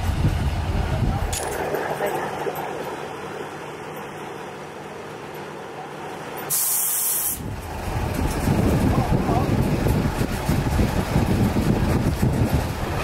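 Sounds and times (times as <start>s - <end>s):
crane engine running: 0.0s - 13.0s
compressed air hiss: 6.5s - 7.5s.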